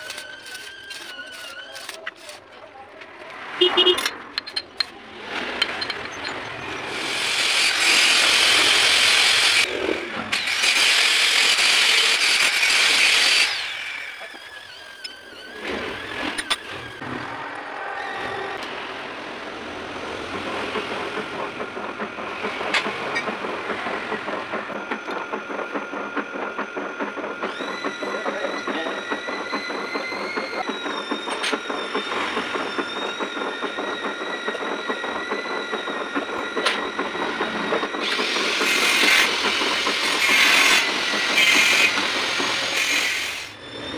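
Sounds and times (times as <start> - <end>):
lathe chuck clattering: 4.0 - 6.6
gear whine: 13.3 - 43.9.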